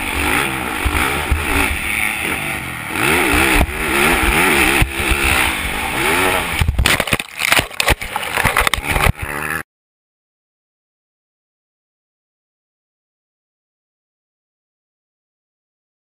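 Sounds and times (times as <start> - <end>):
motorbike engine revving: 0.0 - 9.6.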